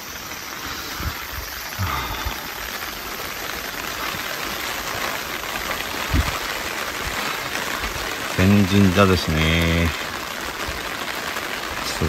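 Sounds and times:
water hissing: 0.0s - 12.0s.

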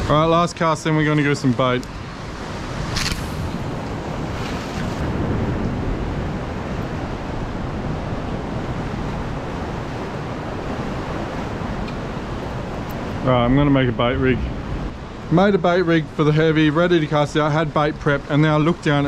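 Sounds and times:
wind on microphone: 1.8s - 15.3s.

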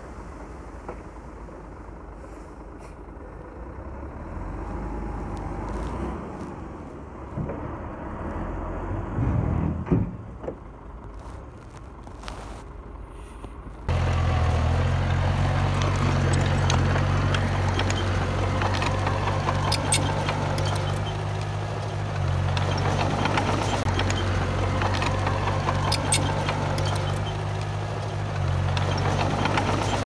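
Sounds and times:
bulldozer diesel engine: 0.0s - 30.0s
metal clanks and crackles: 15.1s - 30.0s.

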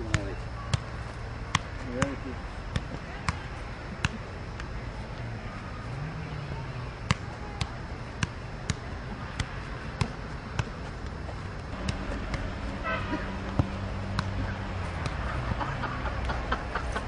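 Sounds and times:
football being struck: 1.5s - 4.2s, 7.0s - 10.8s, 11.7s - 14.4s.

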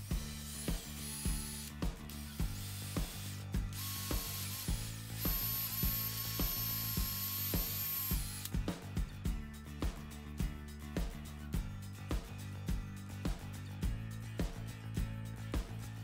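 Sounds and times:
background music with steady beat: 0.0s - 16.0s
cordless drill boring into wood: 0.2s - 8.5s.

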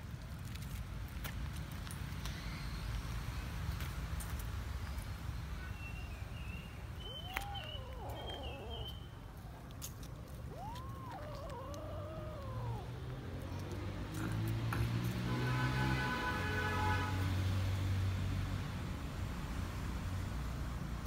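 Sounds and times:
kitten meowing: 10.5s - 13.6s.

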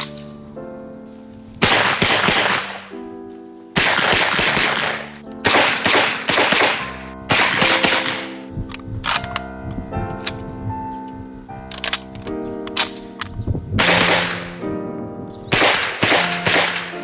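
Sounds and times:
background music: 0.0s - 17.0s
submachine gun firing: 1.6s - 2.9s, 3.8s - 8.4s, 13.8s - 14.5s, 15.5s - 17.0s
ringing after gunfire: 13.8s - 14.6s.

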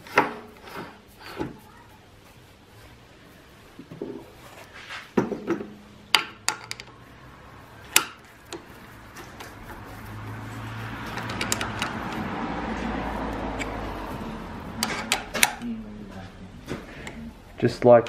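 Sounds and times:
metal clicks and knocks: 5.2s - 7.0s, 11.1s - 12.2s, 14.8s - 15.6s.

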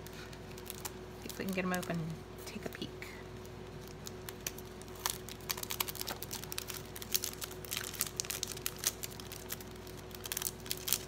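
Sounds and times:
plastic sleeve crinkling: 0.0s - 2.2s, 3.3s - 11.0s.

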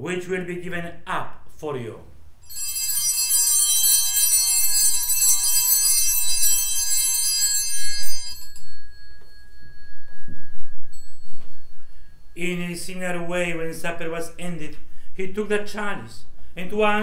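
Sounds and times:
altar bells ringing: 2.4s - 13.7s.

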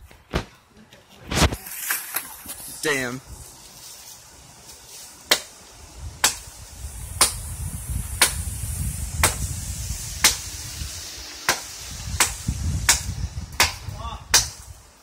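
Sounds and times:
machete chopping tree trunk: 5.3s - 5.6s, 6.2s - 6.5s, 7.2s - 7.4s, 8.2s - 8.4s, 9.2s - 9.4s, 10.2s - 10.4s, 11.4s - 14.7s.

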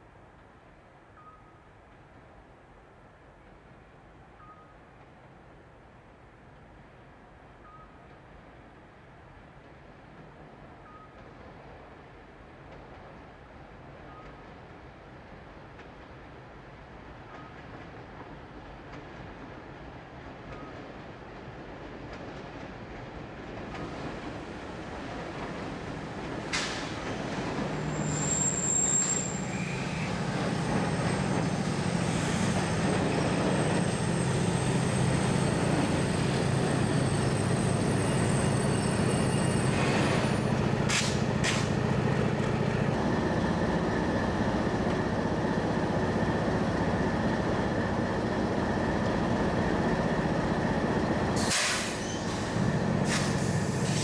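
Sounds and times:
diesel locomotive engines: 10.6s - 54.0s
high squeal: 27.8s - 40.5s, 51.4s - 54.0s.

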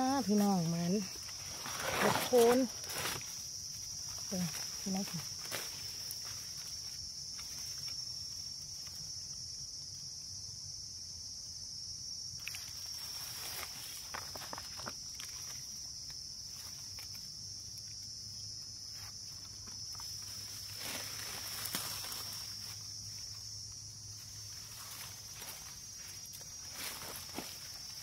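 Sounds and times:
dry leaves rustling: 0.0s - 9.1s, 18.9s - 28.0s
high-pitched insect drone: 0.0s - 28.0s.

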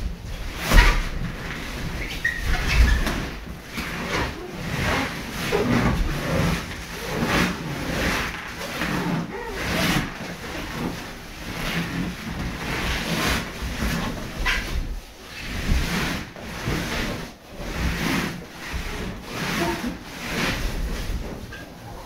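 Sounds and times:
balloons rubbing and squeezing: 0.1s - 22.0s.

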